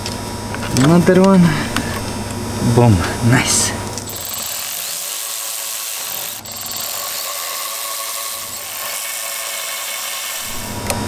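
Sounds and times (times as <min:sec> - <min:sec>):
electric ratchet whirring: 0:04.0 - 0:11.0.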